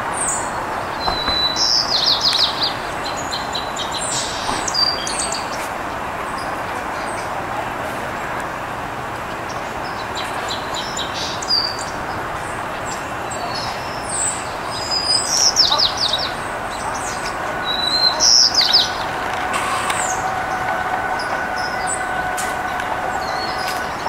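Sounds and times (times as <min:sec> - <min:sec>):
small songbirds chirping: 0:00.0 - 0:07.4, 0:09.0 - 0:24.0
faint steady drone: 0:05.4 - 0:24.0.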